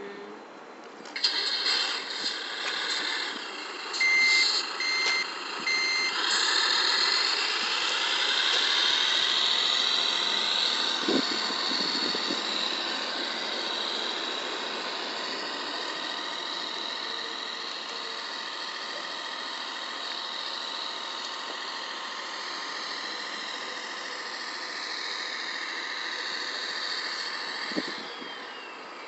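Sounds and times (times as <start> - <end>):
simulated truck engine revving: 1.2 - 29.0
short electronic beeps: 4.0 - 6.2.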